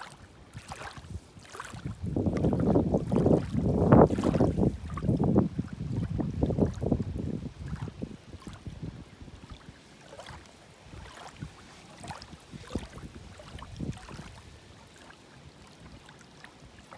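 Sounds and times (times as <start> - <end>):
wind buffeting microphone: 0.5 - 9.6, 10.4 - 14.6.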